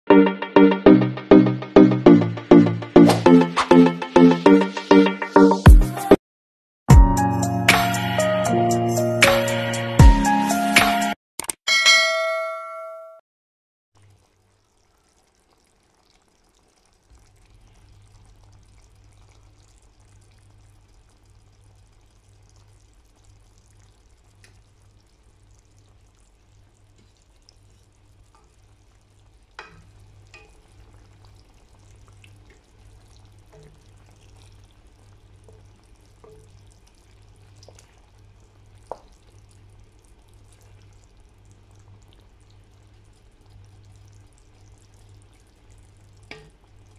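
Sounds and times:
sauce simmering in a wok: 14.0 - 46.9
wooden spatula tapping a pan: 46.3 - 46.6.

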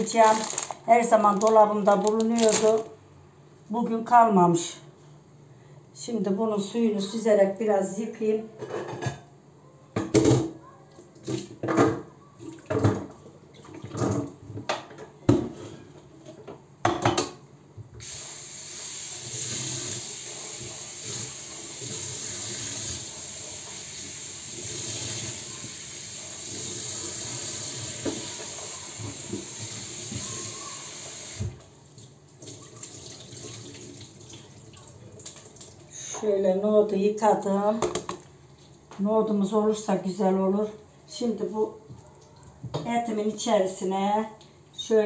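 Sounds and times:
tap running into sink: 26.4 - 30.3.

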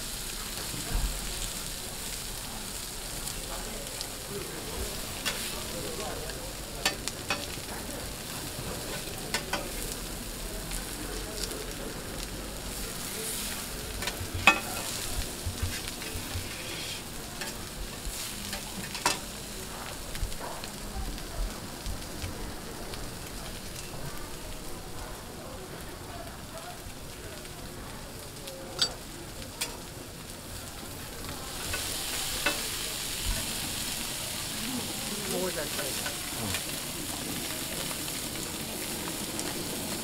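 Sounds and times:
fish sizzling on a griddle: 0.0 - 40.0
metal spatulas scraping griddle: 13.2 - 19.2.

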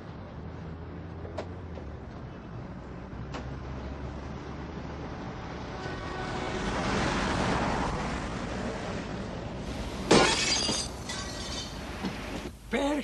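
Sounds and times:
vehicle passing: 0.0 - 10.0.

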